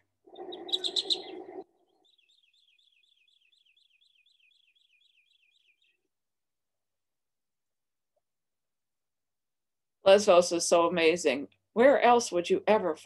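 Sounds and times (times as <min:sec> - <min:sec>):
bird chirping: 0:00.3 - 0:06.1.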